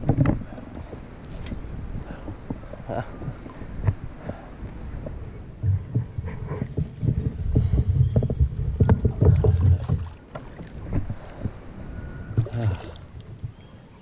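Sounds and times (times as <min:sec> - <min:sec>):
knocks and rubbing near microphone: 0:00.0 - 0:02.6, 0:05.0 - 0:11.2.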